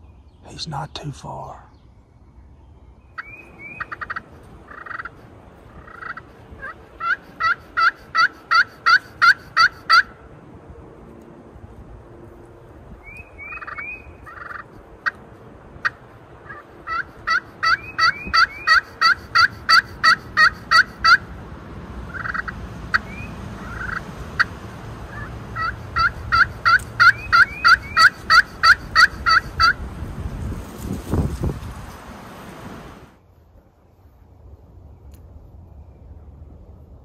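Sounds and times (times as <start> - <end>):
turkey yelping: 3.2 - 10.1, 13.4 - 15.2, 15.8 - 21.3, 22.1 - 24.5, 25.1 - 29.8.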